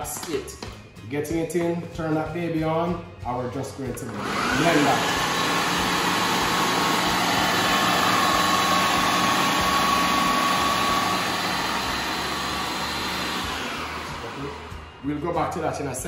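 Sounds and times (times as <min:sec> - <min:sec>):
food processor whirring: 0:04.1 - 0:15.0.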